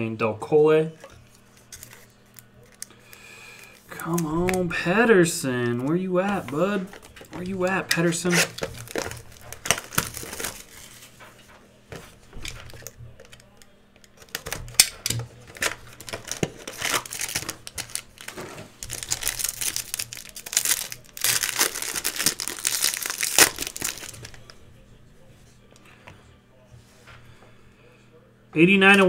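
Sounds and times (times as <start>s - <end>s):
foil wrapper crinkling: 1.6s - 4.8s, 6.4s - 11.2s, 12.6s - 24.6s.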